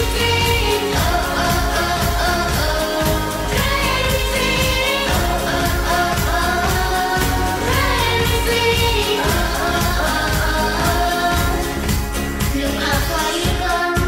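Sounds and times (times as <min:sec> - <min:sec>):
backing track with steady beat: 0:00.0 - 0:14.0
children singing: 0:00.0 - 0:14.0.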